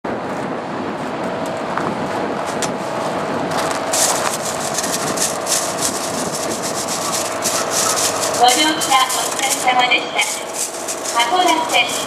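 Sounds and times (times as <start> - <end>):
hissing scrapes: 3.9 - 12.0.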